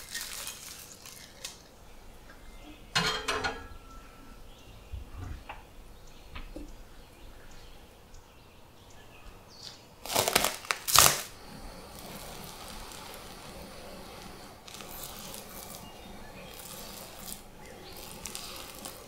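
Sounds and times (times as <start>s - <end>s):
plastic cover crinkling: 0.0s - 2.6s, 9.6s - 19.0s.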